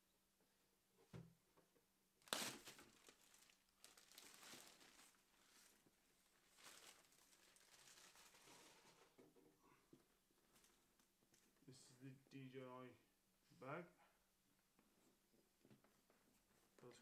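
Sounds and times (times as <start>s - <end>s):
plastic bag crinkling: 2.2s - 9.2s.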